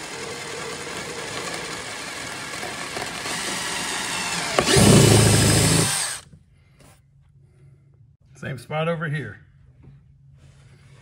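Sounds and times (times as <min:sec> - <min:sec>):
cordless drill whirring: 0:00.0 - 0:06.3.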